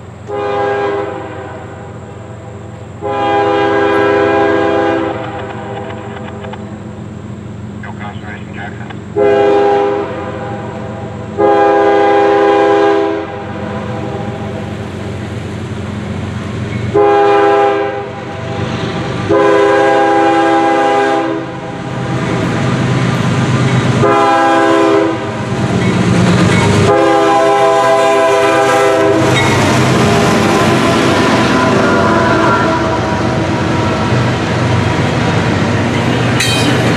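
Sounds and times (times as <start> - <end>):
train wheels on rails: 0.0 - 7.9, 8.5 - 36.9
locomotive air horn blasts: 0.3 - 2.0, 3.0 - 5.9, 9.2 - 14.4, 16.9 - 18.3, 19.3 - 21.6, 24.0 - 25.4, 26.8 - 29.3, 31.2 - 33.3
diesel engine rumble: 5.0 - 9.4.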